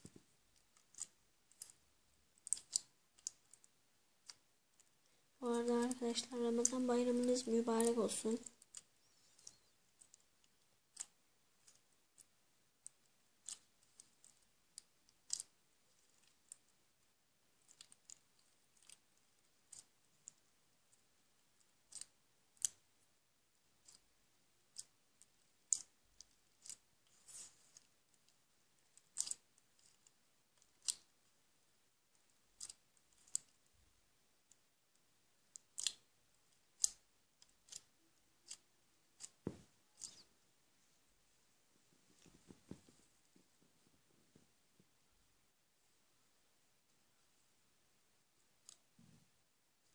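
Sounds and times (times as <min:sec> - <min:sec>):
slime clicking and popping: 0:02.4 - 0:04.4, 0:13.4 - 0:15.5, 0:29.0 - 0:31.1, 0:35.5 - 0:36.1, 0:36.8 - 0:38.6.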